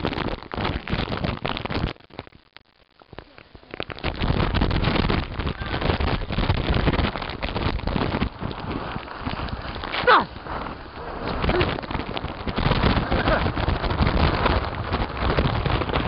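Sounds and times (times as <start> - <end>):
wind buffeting microphone: 3.2 - 16.0.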